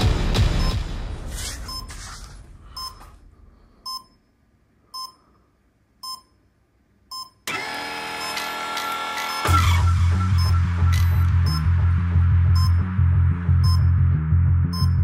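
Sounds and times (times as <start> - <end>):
background music: 0.0 - 1.4, 9.5 - 15.0
short electronic beeps: 1.6 - 2.0, 2.8 - 3.0, 6.0 - 6.4, 9.3 - 11.7, 13.6 - 14.0, 14.7 - 15.0.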